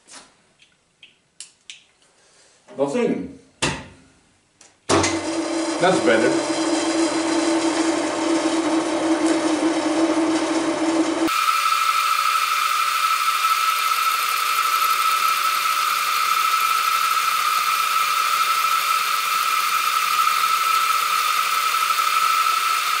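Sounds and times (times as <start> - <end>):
milling machine high whine: 5.2 - 23.0.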